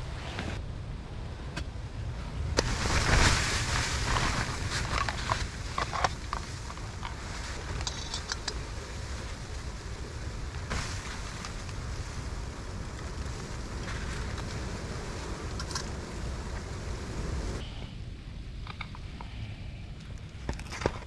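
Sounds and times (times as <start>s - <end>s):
wind buffeting a tent: 0.0s - 21.0s
camp cooking gear clicking: 4.9s - 8.6s.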